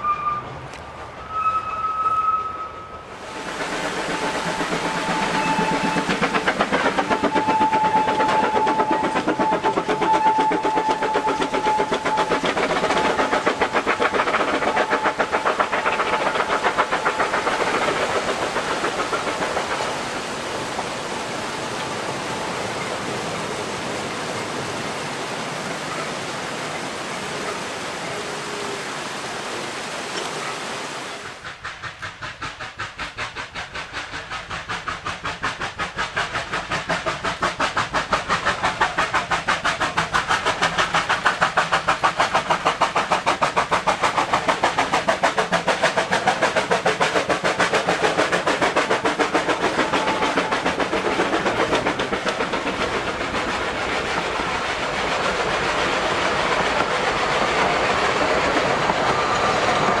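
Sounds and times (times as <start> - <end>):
steady high whistle note: 1.2 - 3.1, 5.0 - 6.2
steam locomotive exhaust chuffing: 2.6 - 23.4, 31.2 - 60.0.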